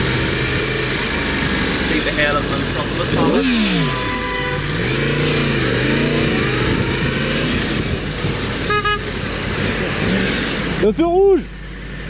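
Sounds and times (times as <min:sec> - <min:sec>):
motorcycle engine revving: 0:00.0 - 0:11.4
wind and road rush: 0:00.0 - 0:12.0
horn toot: 0:01.9 - 0:07.1, 0:08.6 - 0:09.1.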